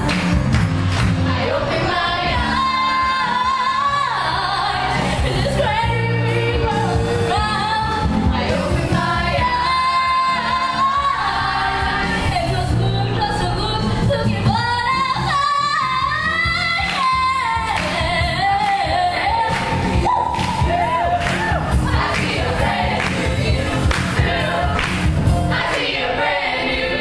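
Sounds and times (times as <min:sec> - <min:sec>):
accompanying music with bass line: 0:00.0 - 0:26.0
choir singing: 0:01.2 - 0:13.2, 0:18.9 - 0:27.0.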